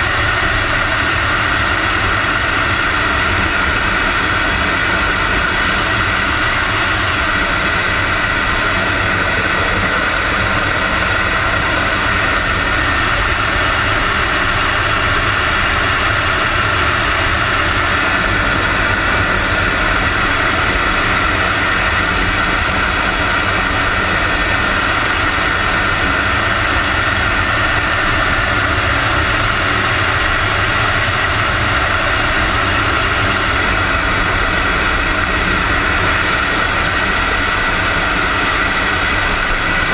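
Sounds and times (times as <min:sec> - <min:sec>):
model jet turbine whine: 0:00.0 - 0:39.9
rush of airflow: 0:00.0 - 0:39.9.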